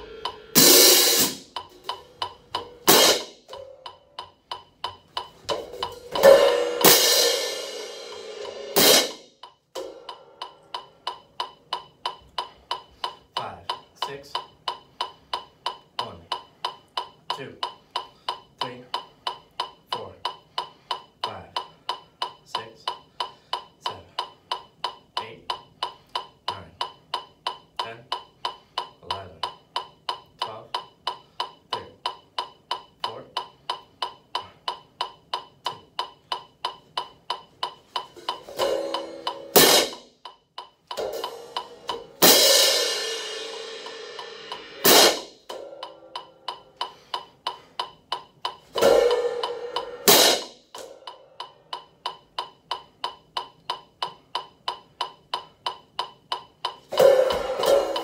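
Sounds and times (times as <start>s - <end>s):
crash cymbals: 0.0s - 1.6s, 5.8s - 10.5s, 41.0s - 46.9s, 48.7s - 51.6s
metronome clicking: 0.0s - 58.0s.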